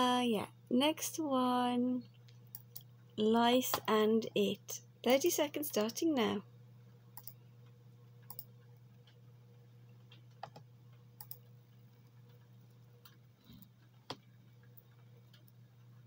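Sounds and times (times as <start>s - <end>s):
steady low hum: 0.0s - 16.0s
faint clicks: 7.2s - 9.2s, 10.0s - 15.9s.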